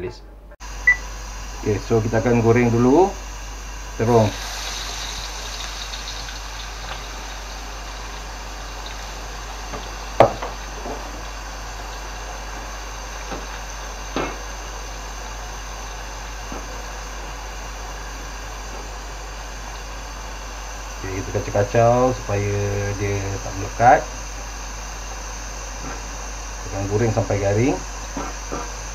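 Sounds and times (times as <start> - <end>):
oil sizzling: 0.6 - 21.6.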